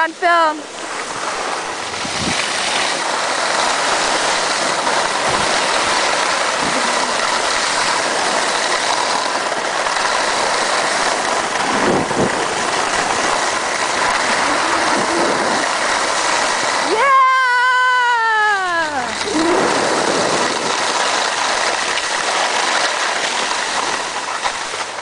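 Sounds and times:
skis sliding over snow: 0.0 - 25.0
wind across microphone: 0.9 - 8.4, 11.0 - 17.0, 18.8 - 21.0.

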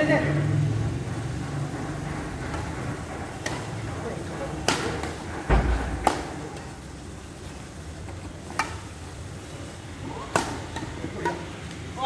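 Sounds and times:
racket hitting shuttlecock: 3.4 - 3.7, 4.6 - 6.7, 8.5 - 8.9, 10.0 - 11.6.

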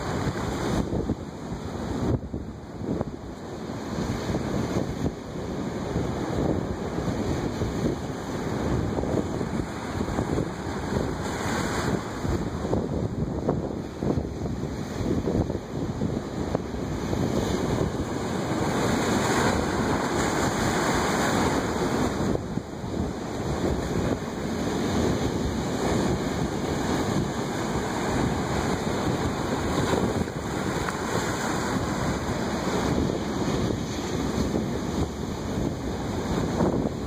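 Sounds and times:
waves breaking on shore: 0.0 - 37.0
wind buffeting microphone: 0.0 - 37.0.

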